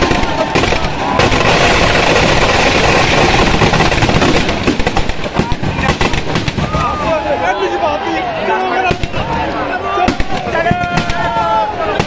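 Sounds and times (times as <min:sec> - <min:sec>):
firecrackers crackling: 0:00.0 - 0:07.8, 0:08.7 - 0:12.0.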